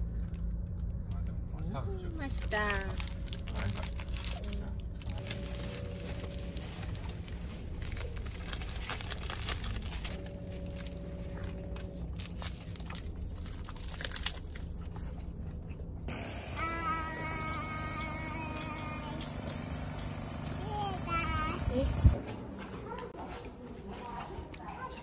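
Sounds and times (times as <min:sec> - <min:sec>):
plastic wrappers crinkling: 0:02.2 - 0:14.9
person chewing: 0:11.7 - 0:15.9
car interior hum: 0:16.1 - 0:22.2.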